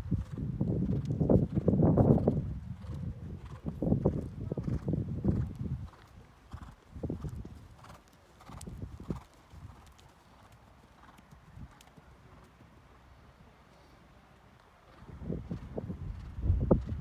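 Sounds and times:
horse hoofbeats trotting: 0.0s - 13.0s.

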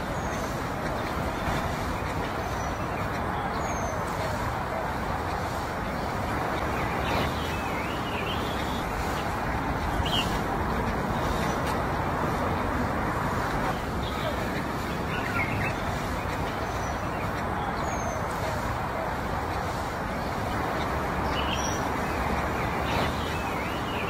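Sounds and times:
outdoor rumble and hiss: 0.0s - 24.0s.

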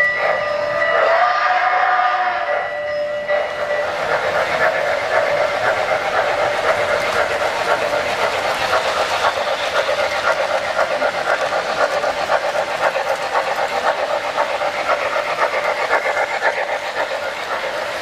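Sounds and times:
model steam locomotive chuffing: 0.0s - 18.0s
model train running on track: 0.0s - 18.0s.

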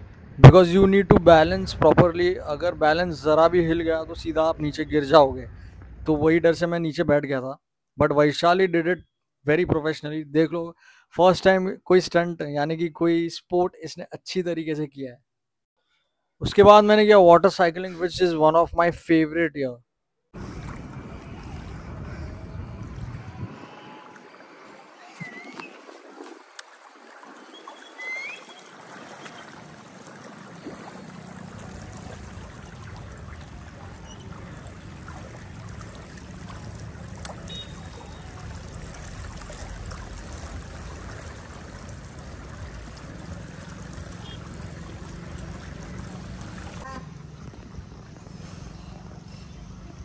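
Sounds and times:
water splashing and churning: 20.4s - 48.3s.

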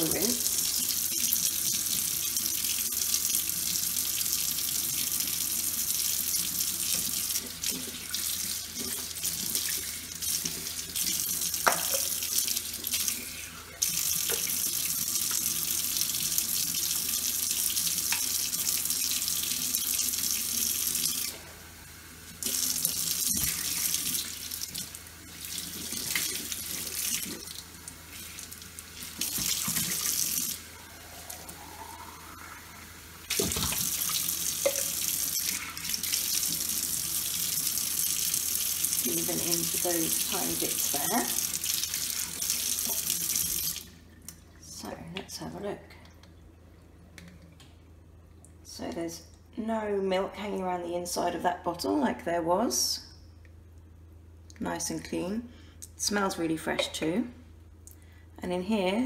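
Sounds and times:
tap running into sink: 11.6s - 12.2s, 34.6s - 35.0s.

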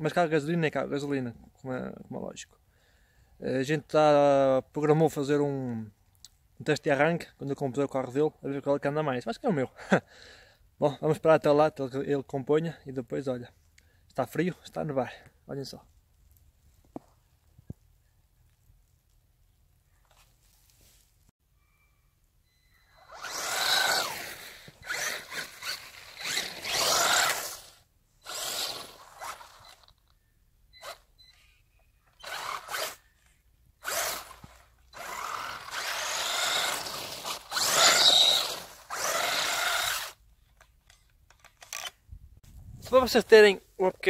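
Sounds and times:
tyres spinning in snow: 23.0s - 29.9s, 33.8s - 40.2s
electric motor whirring: 23.0s - 30.0s, 32.2s - 33.0s, 33.8s - 40.2s.

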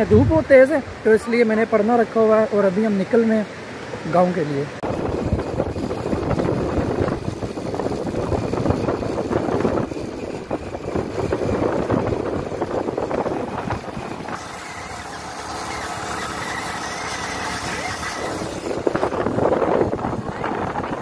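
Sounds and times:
motorcycle engine running: 4.8s - 21.0s.

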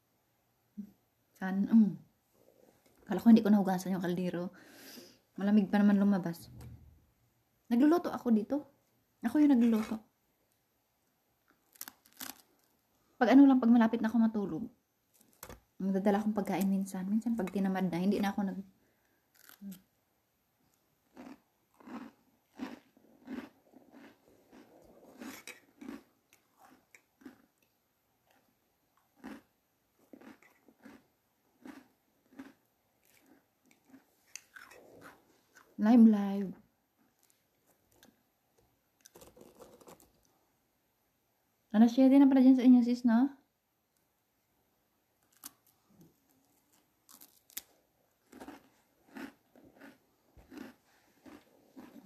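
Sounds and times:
crunchy chewing of bread sticks: 11.5s - 12.8s, 19.3s - 19.9s, 20.6s - 35.8s, 39.0s - 40.3s, 45.2s - 52.0s.

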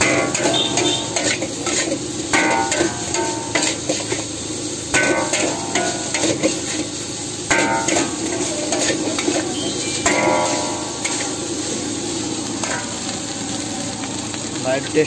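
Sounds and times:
metal spatula scraping a wok: 0.0s - 13.1s
wok ringing: 0.0s - 14.1s
food sizzling: 0.0s - 15.0s.

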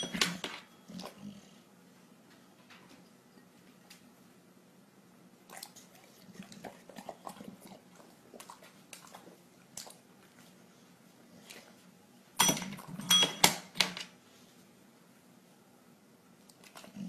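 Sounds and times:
dog chewing and smacking: 5.5s - 10.6s.

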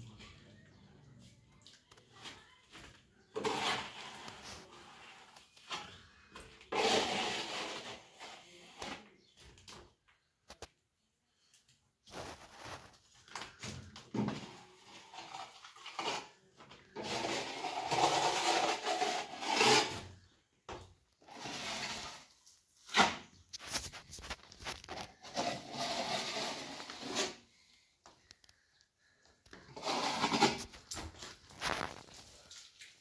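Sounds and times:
trowel scraping plaster on wall: 3.3s - 9.1s, 14.1s - 20.2s, 21.2s - 27.6s, 29.5s - 32.3s.

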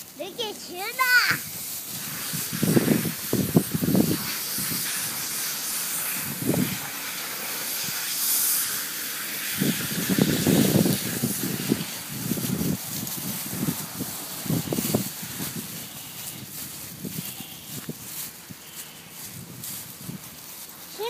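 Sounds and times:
dogs scuffing in leaves: 0.0s - 21.0s
dry leaves rustling: 0.0s - 21.0s.

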